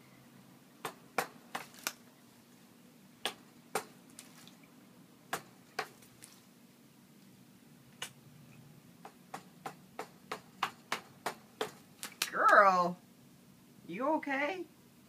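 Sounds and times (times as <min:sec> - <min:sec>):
parrot splashing water: 0:00.9 - 0:02.2, 0:03.3 - 0:06.6, 0:10.0 - 0:12.4.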